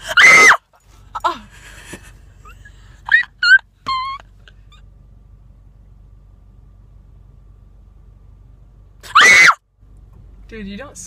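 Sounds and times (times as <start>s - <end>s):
girl squealing: 0.0s - 0.6s, 9.1s - 9.6s.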